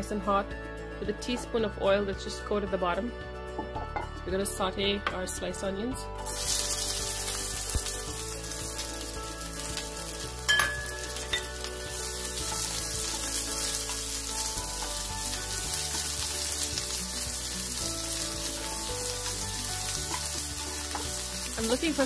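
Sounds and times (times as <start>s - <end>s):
onion sizzling in oil: 6.2s - 22.0s.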